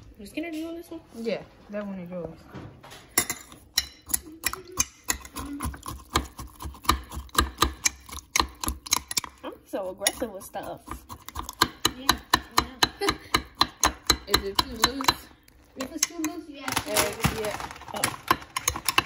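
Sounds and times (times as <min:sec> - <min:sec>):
spoon clinking in ceramic mug: 0:03.2 - 0:06.0, 0:07.5 - 0:09.4.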